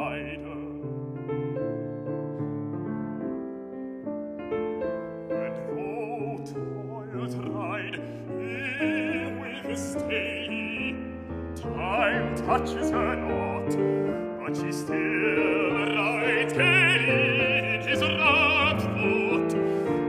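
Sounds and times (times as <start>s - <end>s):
baritone voice singing: 0.0s - 0.8s, 5.3s - 20.0s
grand piano playing: 0.0s - 20.0s.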